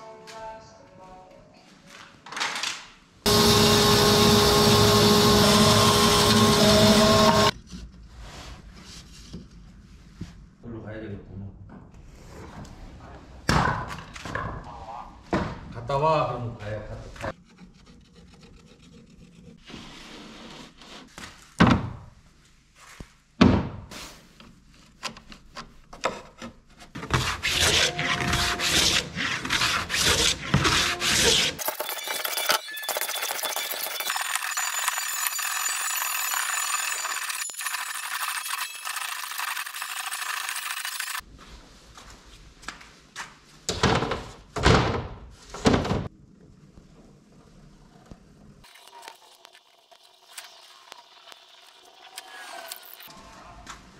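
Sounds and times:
hand plane shaving wood: 17.4 - 21.0, 27.0 - 31.6.

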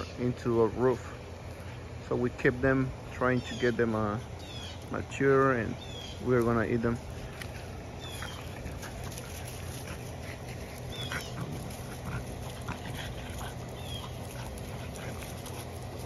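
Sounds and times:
steady low hum: 0.0 - 16.0
puppies squealing and yipping: 4.4 - 4.8, 7.8 - 16.0.

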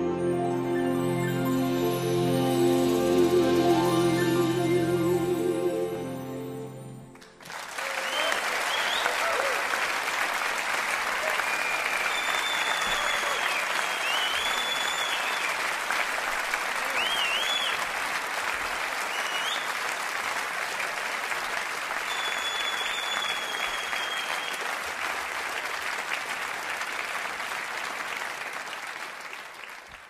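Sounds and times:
audience applauding: 7.1 - 30.0
high whistles: 8.0 - 9.2, 11.3 - 15.6, 16.8 - 17.8, 19.1 - 19.8, 22.0 - 24.7.

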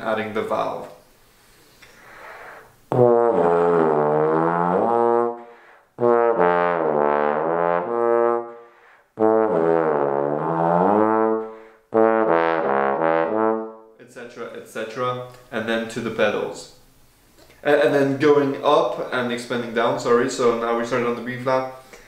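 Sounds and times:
bass trombone playing: 2.2 - 14.0.

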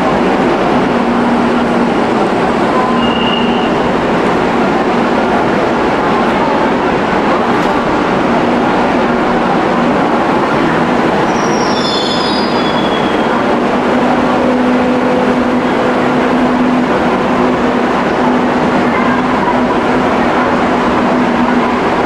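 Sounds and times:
train rumbling on rails: 0.0 - 22.0
high wheel squeal: 2.8 - 3.8, 11.2 - 13.4.

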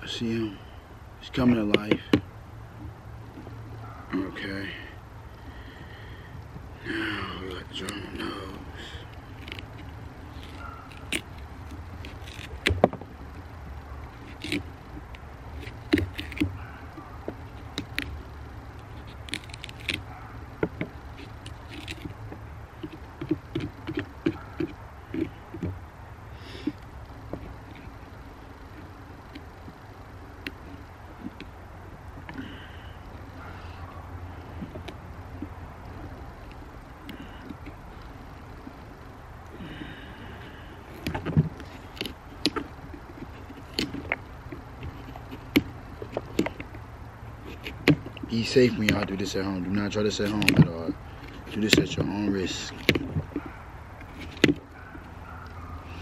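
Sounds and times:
knife cutting pumpkin: 6.9 - 25.8, 41.0 - 55.1.

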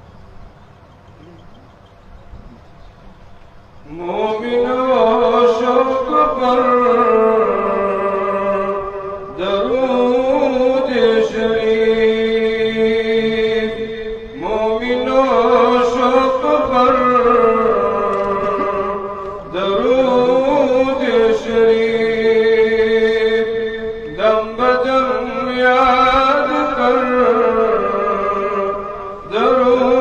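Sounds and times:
man chanting melismatically: 3.9 - 30.0.

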